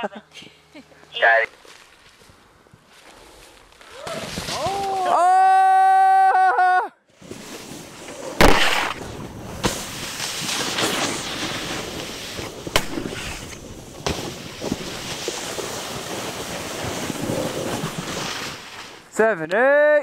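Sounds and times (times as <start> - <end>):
snowboard scraping over snow: 2.9 - 5.1, 7.2 - 19.2.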